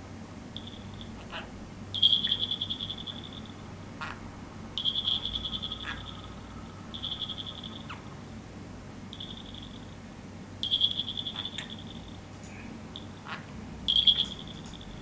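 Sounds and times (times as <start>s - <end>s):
budgerigar chattering: 0.7s - 4.2s, 4.8s - 6.4s, 10.7s - 11.8s.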